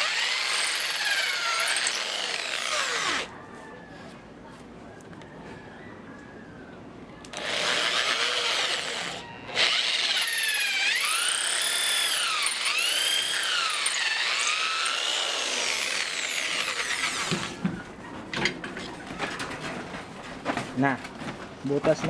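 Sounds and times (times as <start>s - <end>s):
electric drill boring wood: 0.0s - 3.3s, 7.3s - 17.6s.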